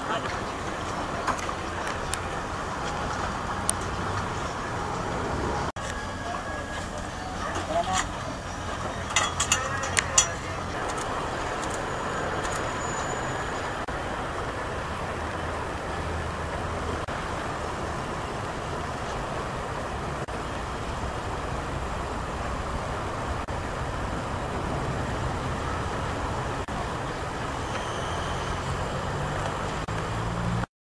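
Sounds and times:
low engine hum: 0:00.0 - 0:30.7
passing vehicles rushing: 0:00.0 - 0:30.7.

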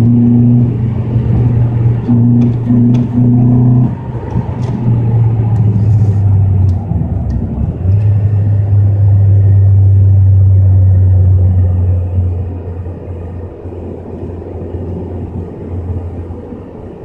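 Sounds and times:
car engine droning: 0:00.0 - 0:17.0.

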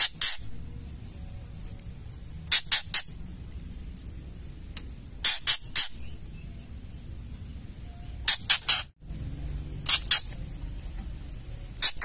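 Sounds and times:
bird rasping chatter call: 0:00.0 - 0:00.6, 0:02.5 - 0:03.2, 0:05.2 - 0:06.5, 0:08.1 - 0:09.0, 0:09.8 - 0:10.4, 0:11.8 - 0:12.0.

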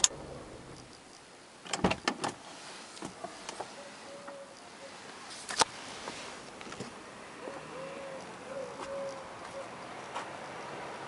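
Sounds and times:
clicks and knocks in car cabin: 0:01.6 - 0:02.4
pigeon cooing: 0:03.7 - 0:05.0, 0:07.4 - 0:09.9.

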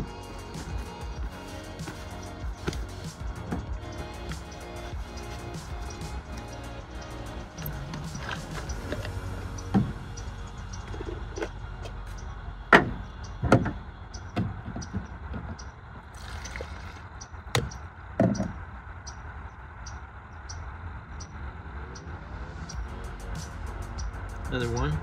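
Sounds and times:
liquid pouring: 0:16.1 - 0:17.1.

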